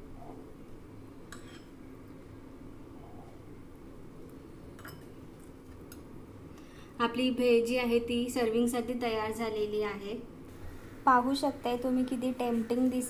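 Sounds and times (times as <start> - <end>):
steady low hum: 0.0 - 13.0
spoon clinking against steel bowls: 1.3 - 1.8, 4.8 - 5.2.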